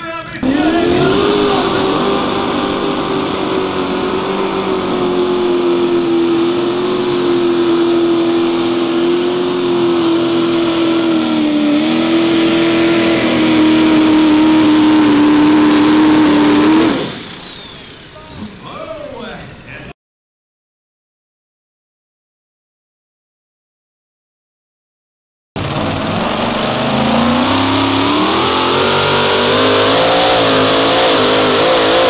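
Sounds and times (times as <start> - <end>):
tractor engine at full throttle: 0.0 - 19.4, 25.6 - 32.0.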